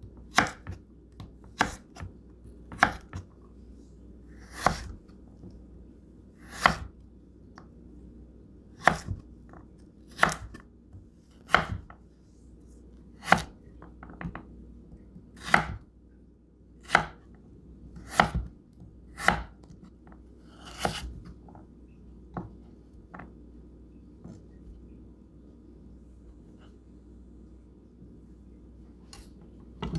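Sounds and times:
knife chopping on wooden board: 0.3 - 2.1, 2.7 - 3.3, 4.4 - 5.0, 6.5 - 6.9, 8.8 - 9.2, 10.1 - 10.6, 11.4 - 11.9, 13.2 - 13.5, 15.4 - 15.8, 16.8 - 17.2, 18.0 - 18.5, 19.2 - 19.7, 20.6 - 21.2.

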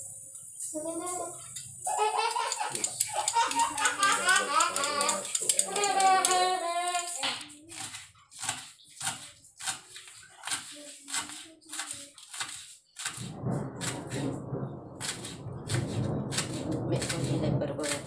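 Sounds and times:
steady rushing noise: 13.2 - 18.0.

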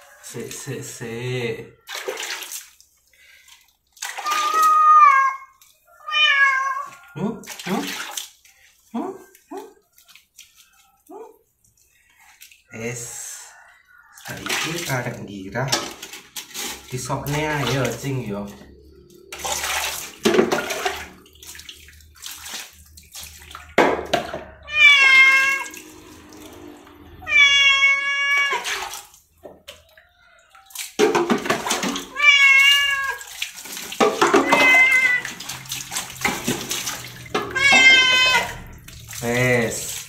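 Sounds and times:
water pouring and splashing: 0.0 - 40.0
cat meowing: 4.1 - 7.2, 24.6 - 26.0, 27.0 - 28.9, 32.0 - 33.3, 34.2 - 35.4, 37.3 - 38.9.

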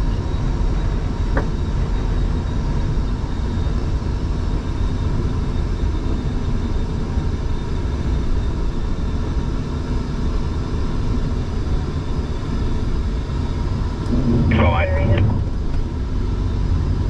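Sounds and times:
truck engine and tyre drone: 10.4 - 17.0.

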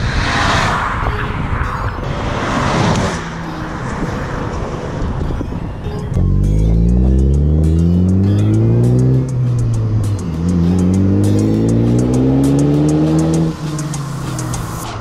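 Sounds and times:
car engine accelerating hard: 6.1 - 14.8.

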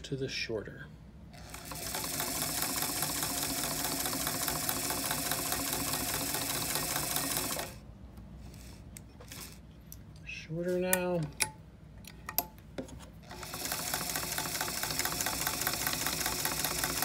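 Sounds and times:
sewing machine needle clatter: 1.4 - 7.7, 13.3 - 17.0.

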